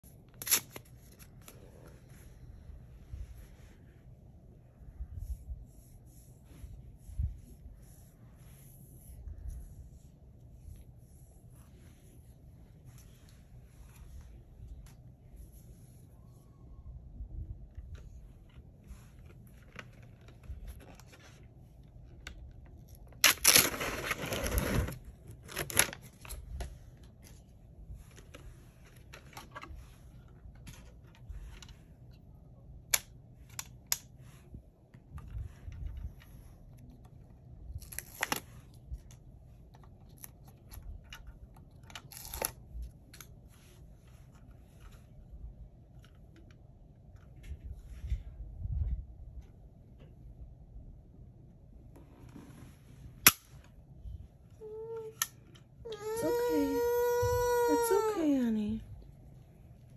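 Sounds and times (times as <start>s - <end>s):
packaging tearing: 0.4s - 1.2s, 23.2s - 26.0s.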